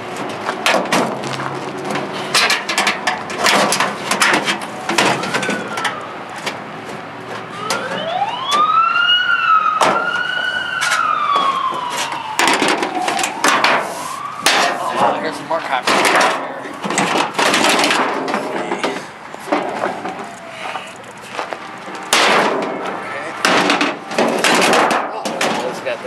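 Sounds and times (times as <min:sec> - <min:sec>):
thin metal clanking and scraping: 0:01.9 - 0:06.0, 0:12.4 - 0:20.4
siren wailing: 0:04.7 - 0:06.4, 0:07.5 - 0:17.5, 0:18.4 - 0:25.3.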